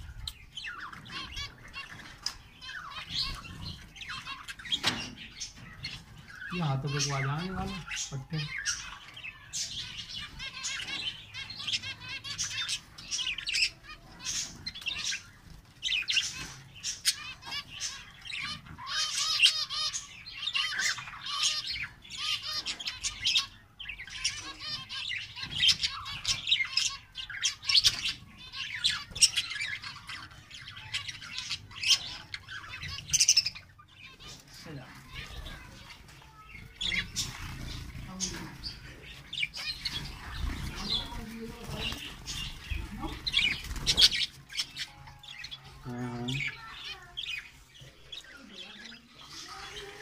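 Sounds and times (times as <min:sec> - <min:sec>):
small birds chirping and warbling: 0:00.0 - 0:50.0.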